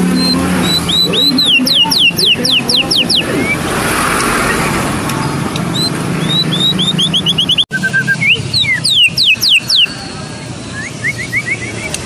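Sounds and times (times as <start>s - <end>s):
vehicle engine running: 0.0s - 12.0s
bird singing sharp whistles: 0.1s - 3.6s, 5.7s - 9.9s, 10.7s - 12.0s.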